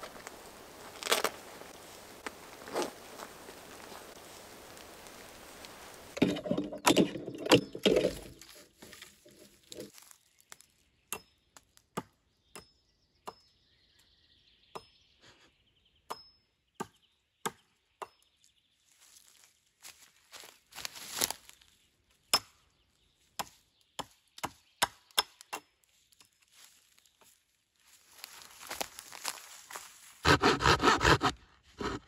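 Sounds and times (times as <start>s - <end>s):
hatchet chopping wood: 16.1s - 18.2s, 22.3s - 22.6s, 23.4s - 25.7s, 30.3s - 31.3s.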